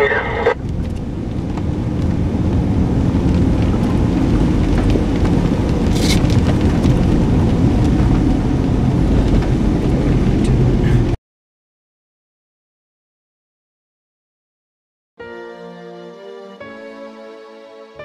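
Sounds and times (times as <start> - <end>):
vehicle driving on wet road: 0.0 - 11.2.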